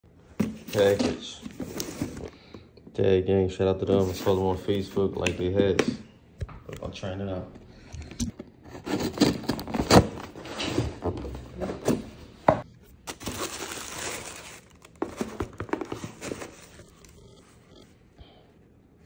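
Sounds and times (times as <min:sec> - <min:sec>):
tissue paper rustling: 0:13.1 - 0:17.0
cardboard box knocking and scraping: 0:15.0 - 0:16.8.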